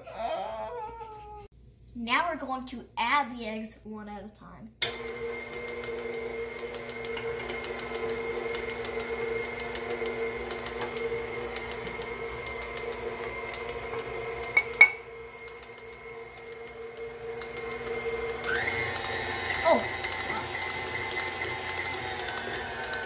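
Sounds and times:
stand mixer running with hum: 4.8 - 23.0.

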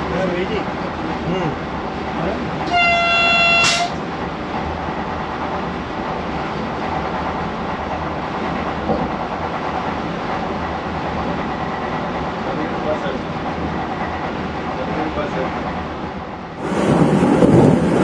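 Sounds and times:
train running noise: 0.0 - 18.0
train horn blast: 2.7 - 4.0.

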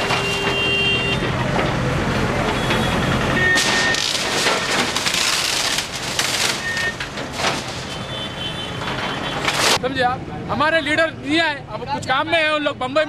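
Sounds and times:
wood crackling and splintering: 1.2 - 8.2
boards cracking: 3.5 - 8.1.

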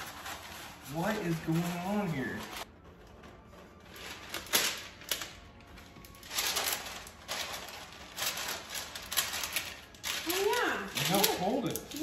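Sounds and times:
parchment paper crinkling: 0.0 - 12.0.

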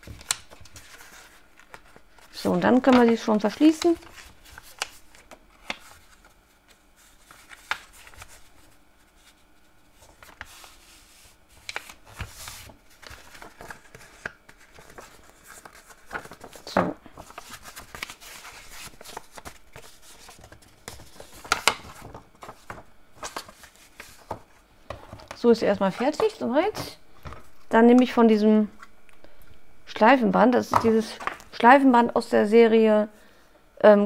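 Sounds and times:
paper crackle: 0.0 - 24.6
paper rustling and crinkling: 0.0 - 27.7, 30.7 - 31.5.

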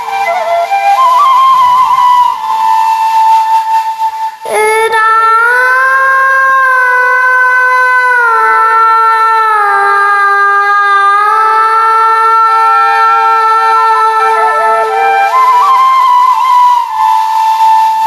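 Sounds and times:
flute: 0.0 - 18.0
harmonium: 10.8 - 16.5.

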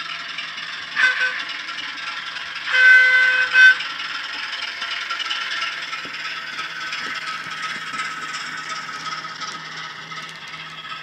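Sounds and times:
diesel engine running through speaker: 0.0 - 11.0
model locomotive horn blasts: 0.8 - 4.5.

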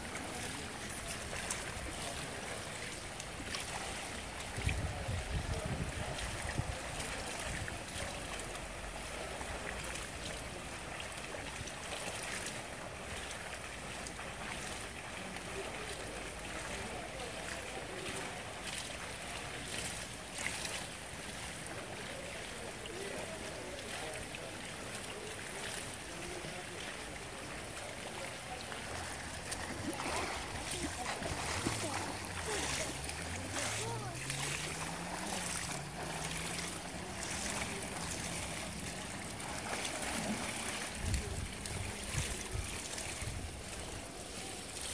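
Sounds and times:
swimmer splashing: 0.0 - 44.9
water wash: 0.0 - 44.9.

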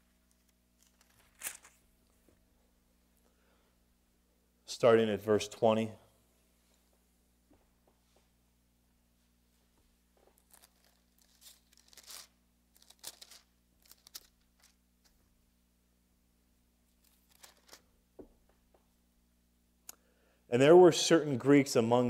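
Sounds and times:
thin pages turning: 0.3 - 1.8, 10.2 - 14.8, 17.0 - 17.9.

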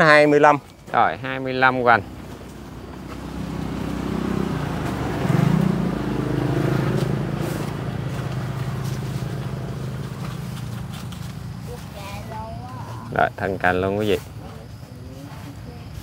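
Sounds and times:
vehicle engine passing by: 1.7 - 12.3.

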